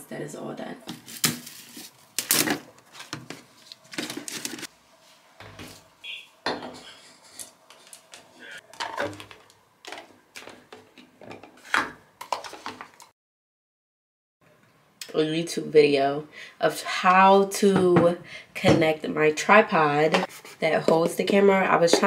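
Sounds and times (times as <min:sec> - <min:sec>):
plastic bottles clattering: 0:00.9 - 0:04.7, 0:08.7 - 0:13.0.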